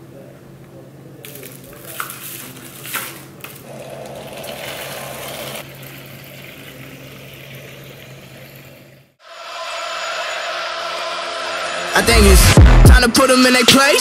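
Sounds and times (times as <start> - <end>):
water running into bottle: 1.8 - 9.0.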